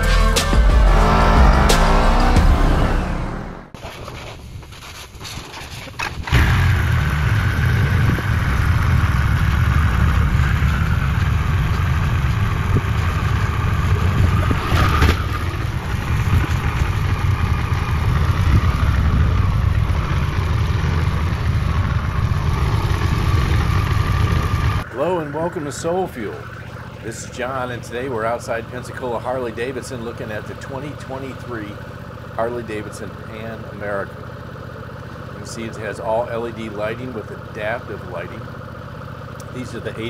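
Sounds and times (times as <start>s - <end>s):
motorcycle engine idling: 15.5s - 40.0s.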